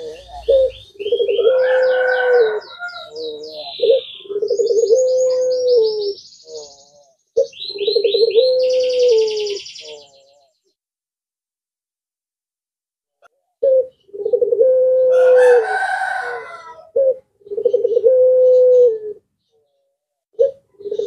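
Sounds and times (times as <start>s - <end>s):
dove cooing: 0.0s - 10.6s, 13.5s - 21.0s
small bird chirping: 0.0s - 10.7s.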